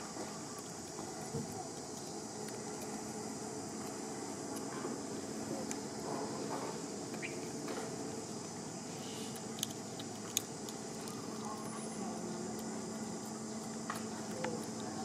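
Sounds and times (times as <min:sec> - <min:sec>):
high insect drone: 0:00.0 - 0:15.0
outdoor background noise: 0:00.0 - 0:15.0
sharp clicks: 0:09.3 - 0:11.6.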